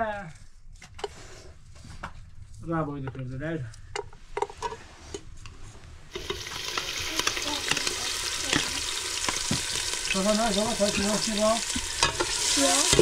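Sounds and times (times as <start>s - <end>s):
sizzling hiss: 6.1s - 13.0s.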